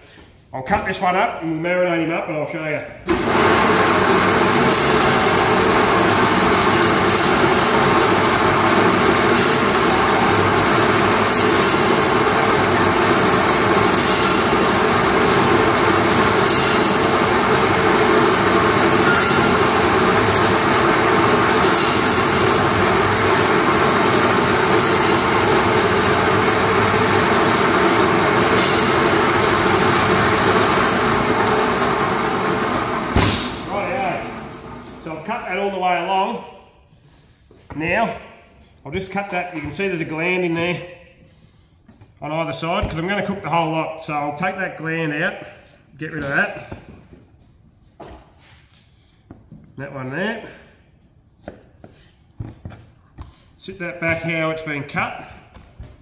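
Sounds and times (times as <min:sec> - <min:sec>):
meat bandsaw cutting bone: 0:03.1 - 0:35.2.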